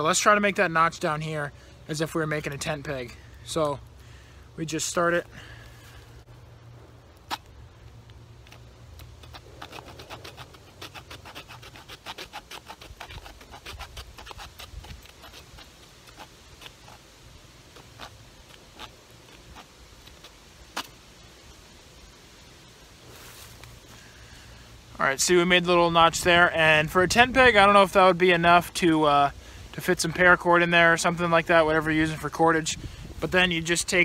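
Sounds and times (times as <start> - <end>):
saw blade cutting wooden stick: 9.2 - 17.0.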